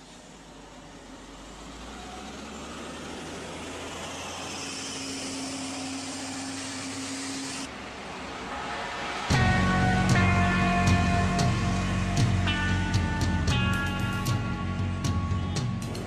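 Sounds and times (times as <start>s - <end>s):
engine hum: 0.0s - 16.0s
vehicle passing on road: 0.0s - 16.0s
loud music: 8.6s - 16.0s.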